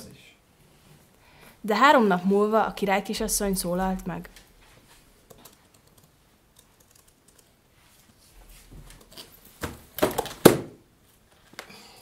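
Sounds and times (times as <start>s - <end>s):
laptop rustling and handling: 4.4s - 11.7s.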